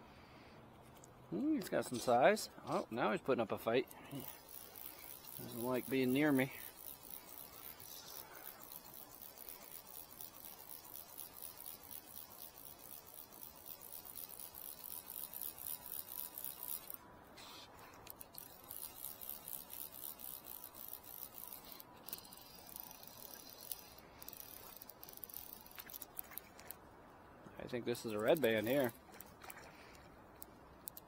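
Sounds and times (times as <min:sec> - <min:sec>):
rapid high-pitched ticking: 0:03.6 - 0:17.0, 0:18.0 - 0:26.7, 0:27.9 - 0:29.3.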